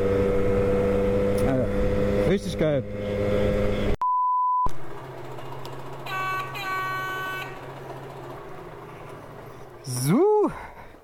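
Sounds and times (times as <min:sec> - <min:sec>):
censor beep: 0:04.0 - 0:04.7
moped engine running: 0:04.7 - 0:11.0.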